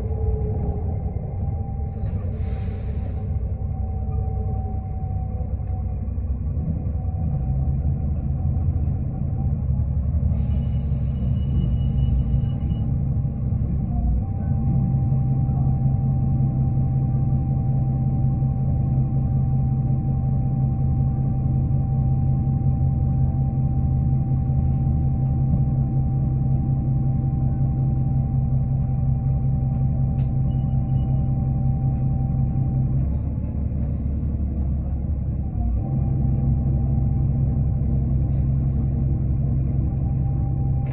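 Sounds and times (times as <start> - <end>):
bus diesel engine drone: 0.0 - 40.9.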